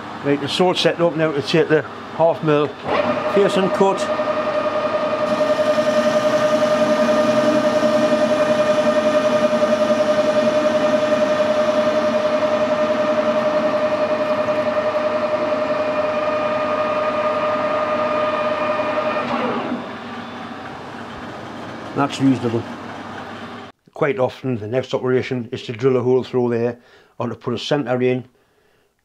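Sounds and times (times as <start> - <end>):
metal lathe whine: 1.9 - 23.7
rough metal cutting noise: 2.8 - 20.0.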